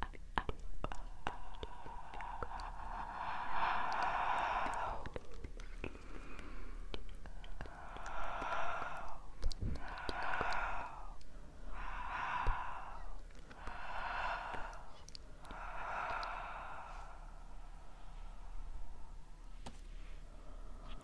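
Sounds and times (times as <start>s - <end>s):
person breathing: 0.9s - 21.0s
faint clicks: 3.4s - 11.3s.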